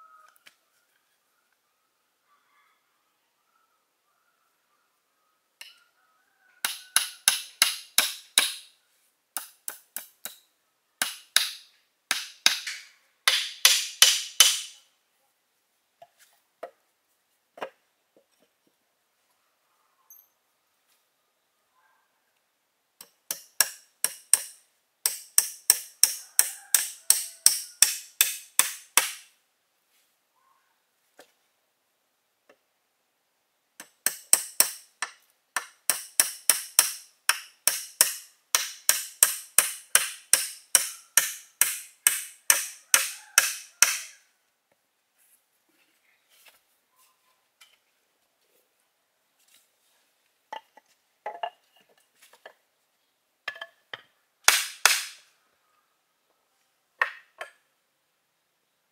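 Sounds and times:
sharp strikes on bamboo: 6.6s - 8.7s, 11.0s - 14.8s, 23.0s - 29.3s, 33.8s - 34.9s, 35.6s - 44.2s, 54.5s - 55.2s.

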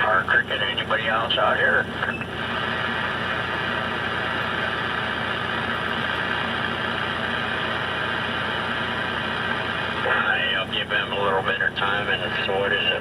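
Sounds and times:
radio static hiss: 0.0s - 4.9s, 10.0s - 13.0s
low steady hum: 0.0s - 13.0s.

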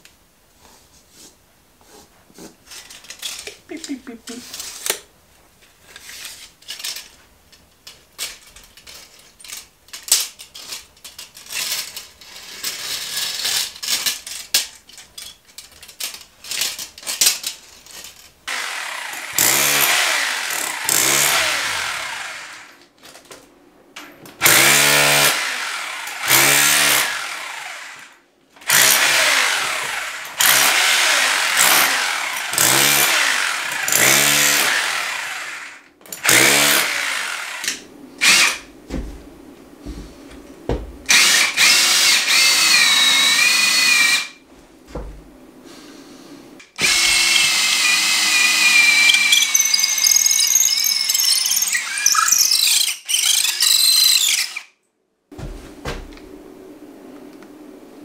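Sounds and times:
electric drill boring: 18.5s - 22.7s, 24.4s - 28.1s, 28.7s - 38.6s, 41.1s - 44.3s, 46.8s - 54.7s.

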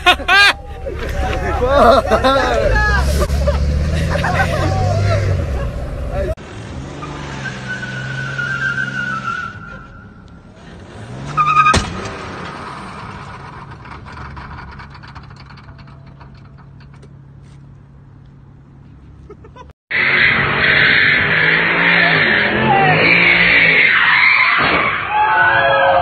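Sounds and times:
car engine revving and idling: 0.0s - 9.0s.

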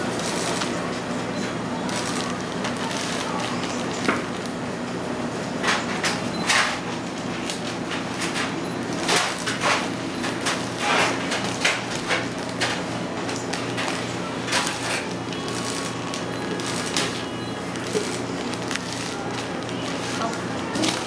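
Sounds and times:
baking paper crinkling and scraping: 1.8s - 4.6s, 7.4s - 21.0s.

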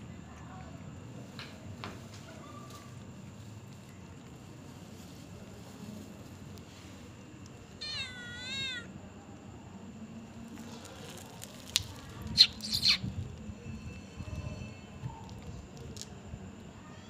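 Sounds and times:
cat meowing: 7.8s - 8.9s.

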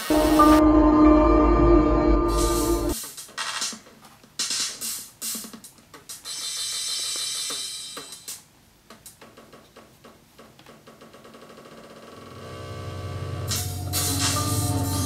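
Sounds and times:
glitchy electronic hits: 0.0s - 3.0s
sustained synthesizer hiss: 0.0s - 3.0s, 12.6s - 15.0s.

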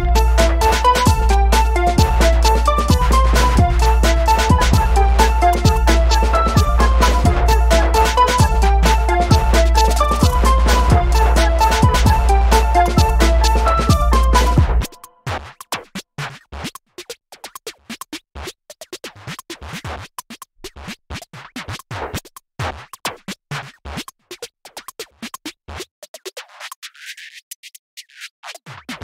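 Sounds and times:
electronic music with clicks: 0.0s - 15.2s.

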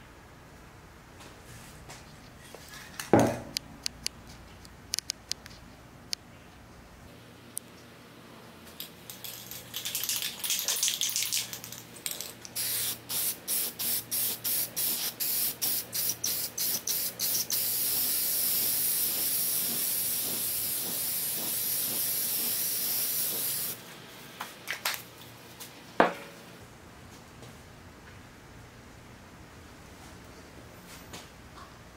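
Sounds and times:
aerosol can rattling: 9.1s - 13.3s
aerosol spray hissing: 12.6s - 23.8s.

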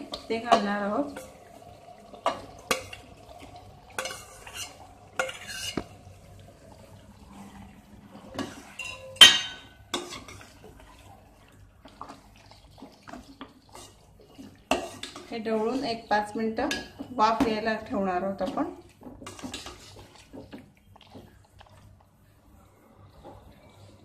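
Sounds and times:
spoon scraping steel pot: 4.0s - 5.9s, 8.3s - 10.6s, 13.7s - 16.1s, 19.2s - 20.5s.

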